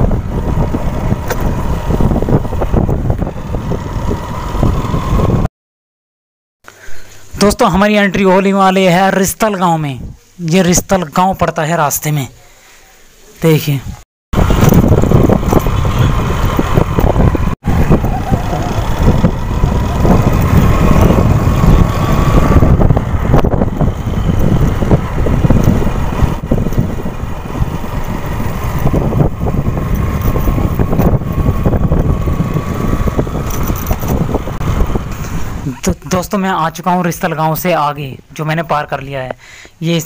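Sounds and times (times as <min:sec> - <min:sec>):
motorcycle engine running: 0:00.0 - 0:05.5, 0:14.4 - 0:35.6
wind buffeting microphone: 0:00.0 - 0:05.5, 0:14.3 - 0:35.7.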